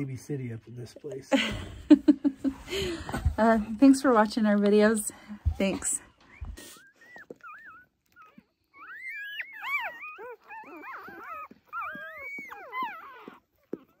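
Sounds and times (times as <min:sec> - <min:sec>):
puppies squealing and whimpering: 0:06.2 - 0:14.0.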